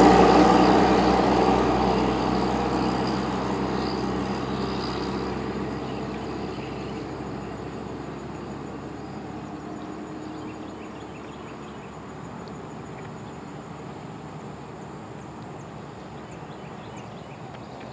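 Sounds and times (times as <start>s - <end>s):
dump truck diesel engine: 0.0s - 12.1s.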